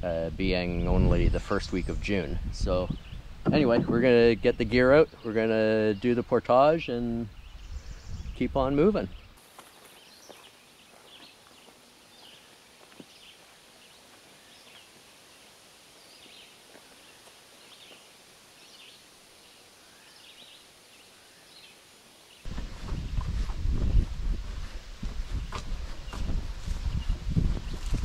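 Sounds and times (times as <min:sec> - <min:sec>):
faint hiss: 0:11.8 - 0:22.4.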